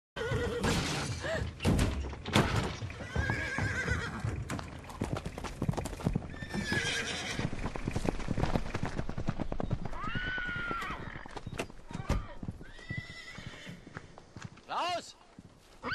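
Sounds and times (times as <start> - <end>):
horse whinnying: 0.2 - 1.2, 3.0 - 4.4, 6.3 - 7.5, 9.9 - 11.4, 12.0 - 13.9
hooves clattering on road: 0.2 - 15.9.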